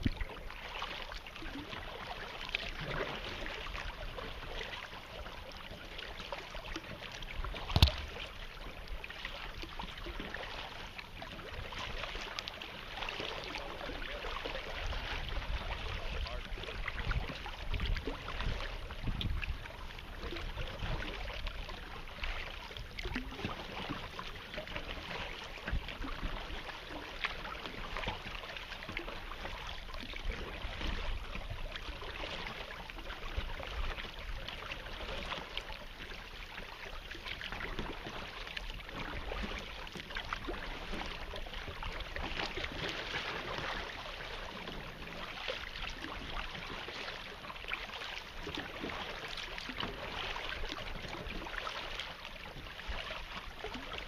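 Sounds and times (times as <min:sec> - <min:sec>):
paddle splashes and drips: 0:00.0 - 0:54.0
water lapping against kayak hull: 0:00.0 - 0:54.0
wind rumble on microphone: 0:13.4 - 0:29.0.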